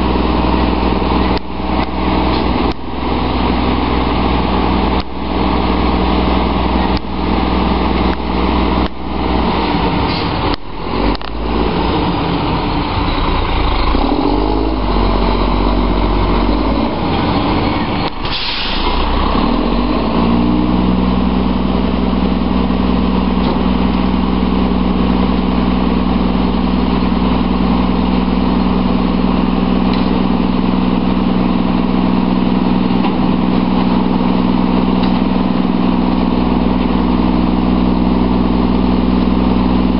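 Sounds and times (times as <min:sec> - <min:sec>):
diesel truck engine: 0:00.0 - 0:39.9.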